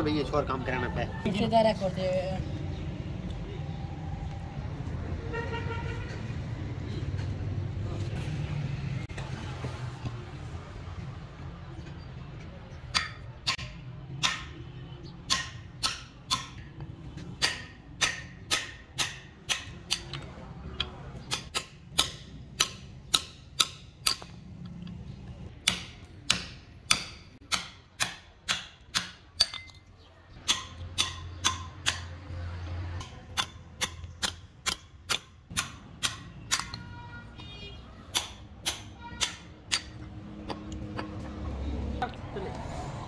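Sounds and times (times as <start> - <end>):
hammer striking steel chisel: 12.9 - 14.6, 15.3 - 16.8, 17.4 - 20.2, 20.8 - 24.4, 25.6 - 29.8, 30.4 - 32.2, 33.0 - 37.0, 38.1 - 41.2.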